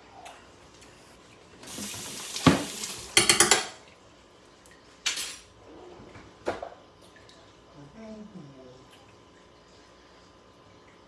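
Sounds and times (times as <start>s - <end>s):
utensils and dishes clattering: 2.5s - 3.8s, 5.1s - 5.5s
dishes clinking: 3.2s - 3.8s.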